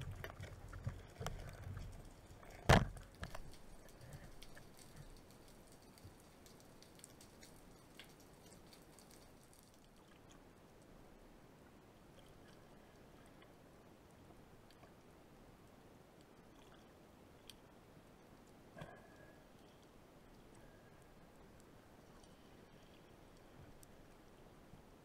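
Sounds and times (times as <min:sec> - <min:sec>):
faint clicks and ticks: 0:00.0 - 0:10.9, 0:11.6 - 0:24.9
faint underwater hiss: 0:00.8 - 0:09.6, 0:18.7 - 0:24.3.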